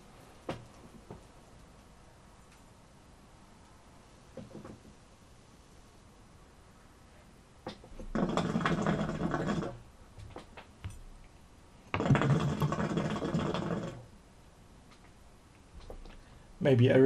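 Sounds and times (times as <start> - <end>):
hookah water bubbling: 7.7 - 9.8, 11.9 - 14.2.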